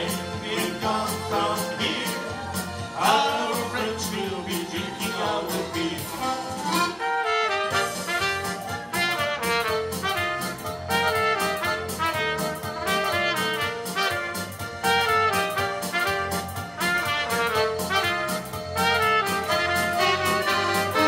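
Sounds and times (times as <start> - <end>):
electronic keyboard: 0.0 - 21.0
trumpet playing melody: 6.0 - 21.0
steady beat: 7.7 - 21.0.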